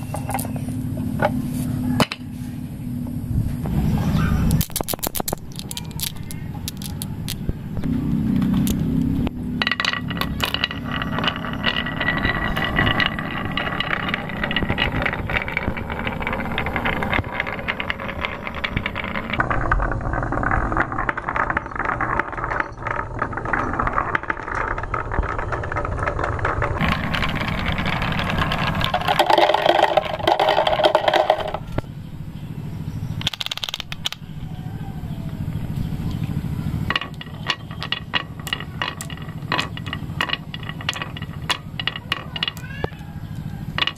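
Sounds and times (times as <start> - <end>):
marbles rolling on wooden tracks: 0.0 - 2.3, 4.4 - 31.8, 33.2 - 34.3, 35.2 - 43.9.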